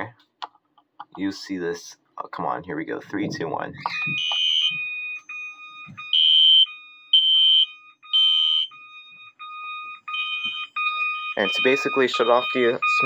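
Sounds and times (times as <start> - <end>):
high-pitched smoke alarm tone: 3.9 - 13.0.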